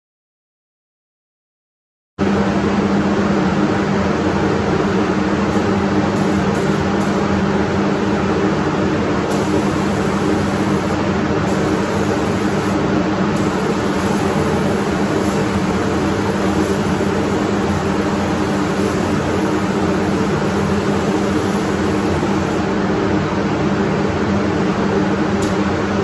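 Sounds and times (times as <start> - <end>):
spray booth fan hum: 2.2 - 26.0
spray gun air hiss: 5.5 - 7.4, 9.3 - 22.7.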